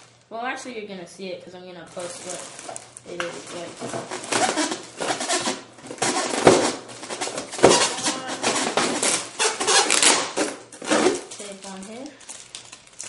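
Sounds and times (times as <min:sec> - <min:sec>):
plastic packaging crinkling: 0:00.0 - 0:00.3, 0:01.9 - 0:13.0.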